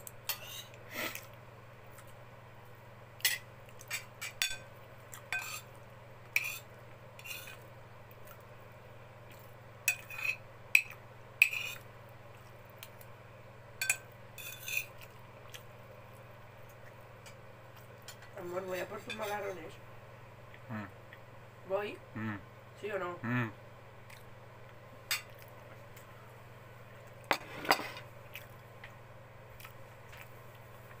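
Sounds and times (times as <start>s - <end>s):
cutlery clinking on a plate: 27.3s - 28.1s.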